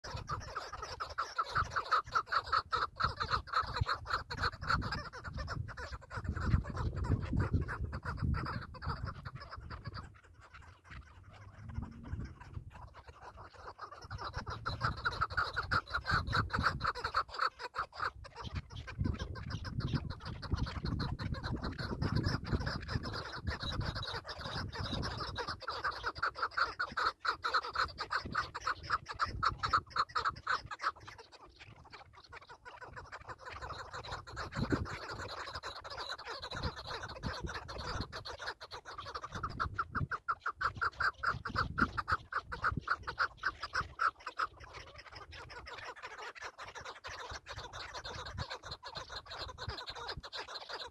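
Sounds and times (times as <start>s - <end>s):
wind rumbling on microphone: 0.0s - 1.0s, 2.9s - 17.1s, 18.2s - 26.1s, 27.8s - 30.7s, 32.9s - 35.6s, 36.4s - 38.4s, 39.0s - 44.0s, 47.6s - 50.3s.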